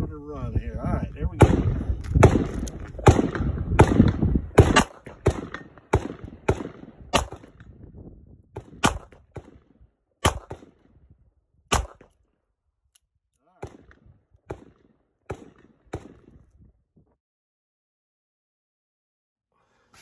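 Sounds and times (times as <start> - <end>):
revolver gunshots: 1.4 - 7.7, 8.6 - 10.9, 11.7 - 12.1, 13.5 - 16.3.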